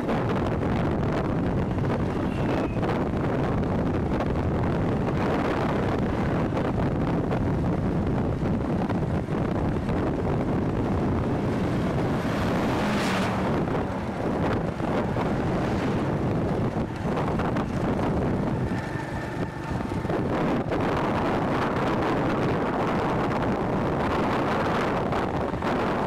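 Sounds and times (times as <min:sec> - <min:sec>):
road noise: 0:00.0 - 0:26.0
wind buffeting microphone: 0:00.0 - 0:26.0
vehicle passing: 0:09.8 - 0:22.0.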